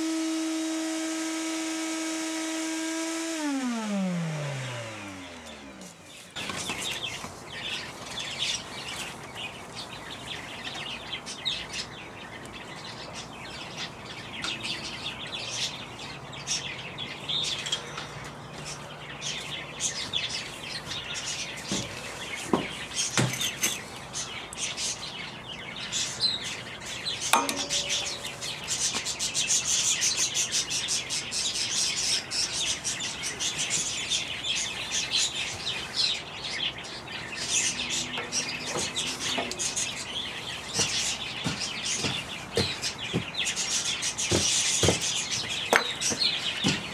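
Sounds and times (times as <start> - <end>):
birds chirping: 2.2 - 46.9
sharp knocks: 27.4 - 28.6.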